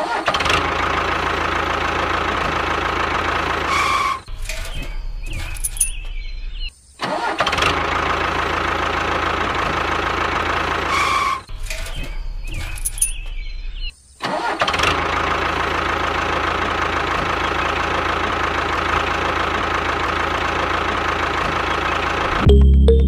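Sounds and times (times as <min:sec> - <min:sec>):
engine running: 0:00.0 - 0:06.1, 0:07.5 - 0:13.2, 0:14.5 - 0:23.0.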